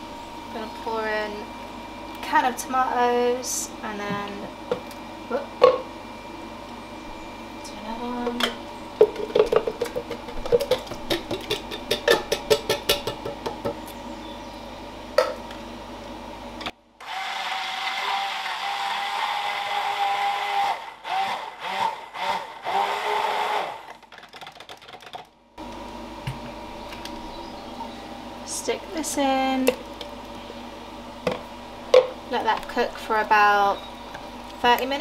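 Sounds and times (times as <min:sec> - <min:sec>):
blender running: 0:17.0 - 0:24.0.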